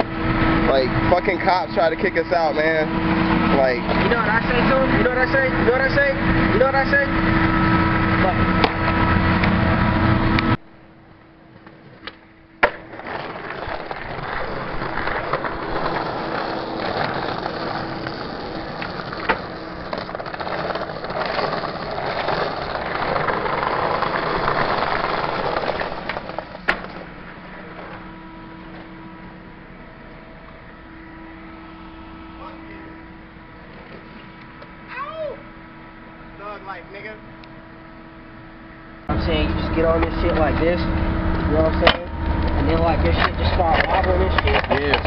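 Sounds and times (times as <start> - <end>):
skateboard wheels rolling on bricks: 11.5 - 29.0, 40.0 - 45.0
skateboard clacks: 11.6 - 27.1.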